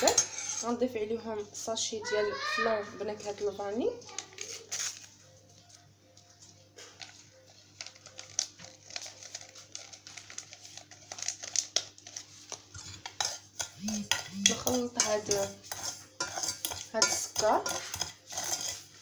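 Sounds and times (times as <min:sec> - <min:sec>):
paper sachet tearing and crinkling: 0:04.0 - 0:05.8, 0:06.5 - 0:15.4.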